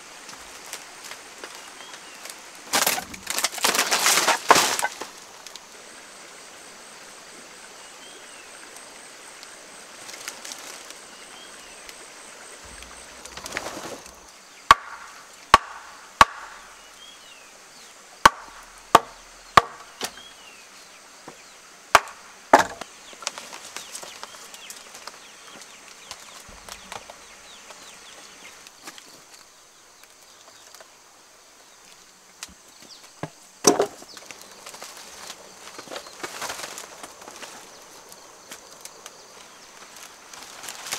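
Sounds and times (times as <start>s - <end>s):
clatter of old boards: 2.7s - 5.1s, 22.5s - 24.2s, 33.2s - 34.2s
sharp wooden knocks: 14.7s - 16.8s, 18.2s - 20.2s, 21.9s - 22.8s.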